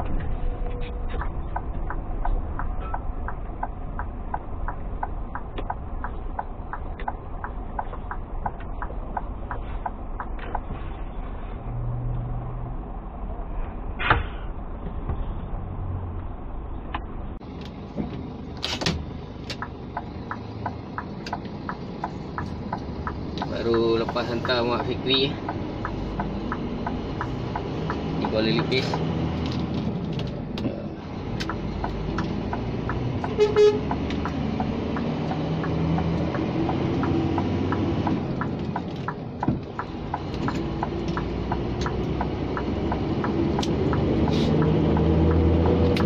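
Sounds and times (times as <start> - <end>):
diesel engine low rumble: 0.0 - 46.0
turn-signal indicator ticking: 0.6 - 10.7, 19.1 - 29.0, 30.6 - 46.0.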